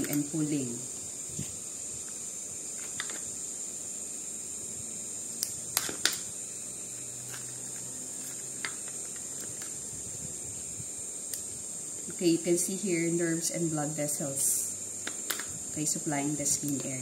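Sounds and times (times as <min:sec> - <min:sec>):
steady high hiss: 0:00.0 - 0:17.0.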